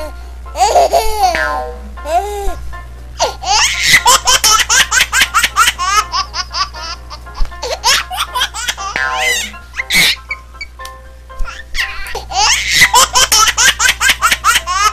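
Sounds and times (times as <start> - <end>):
steady low hum: 0.0 - 14.9
high-pitched laughter: 3.5 - 5.8, 12.3 - 14.9.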